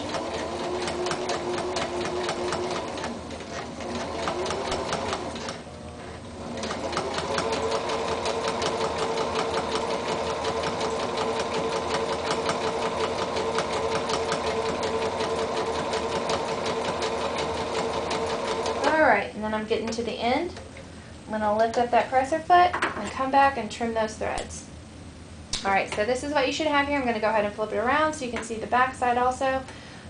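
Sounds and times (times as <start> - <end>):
sewing machine needle striking: 0.0 - 3.2, 3.8 - 5.6, 6.6 - 18.9
sewing machine motor hum: 0.0 - 19.1.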